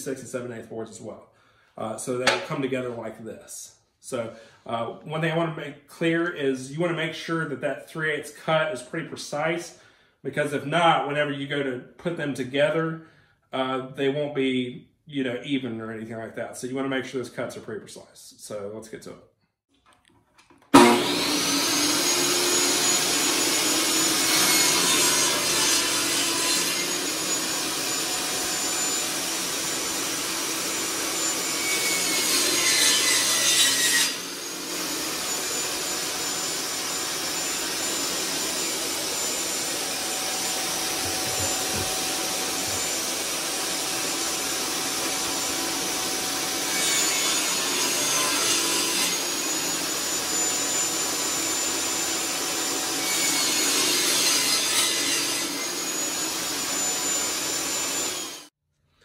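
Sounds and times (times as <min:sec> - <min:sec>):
table saw cutting wood: 0:02.2 - 0:02.6, 0:20.7 - 0:58.6.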